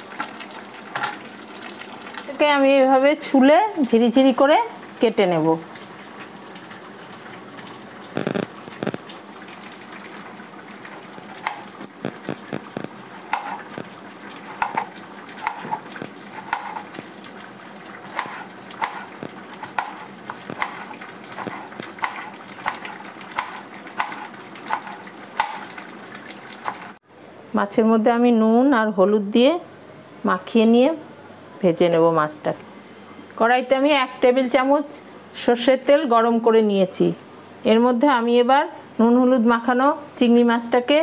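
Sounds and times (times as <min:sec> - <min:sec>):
knife chopping on plastic board: 0:12.8 - 0:13.6, 0:14.5 - 0:15.8, 0:16.4 - 0:16.8, 0:18.2 - 0:25.6.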